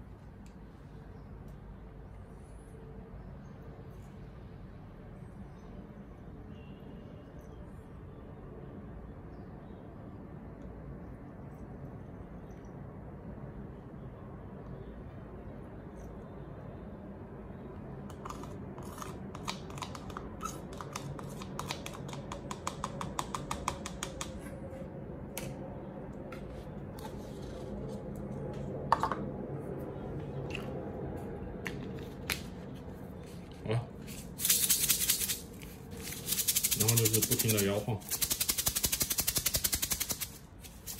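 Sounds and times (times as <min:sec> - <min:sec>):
bottle of wet grain shaken: 0:34.0 - 0:40.9.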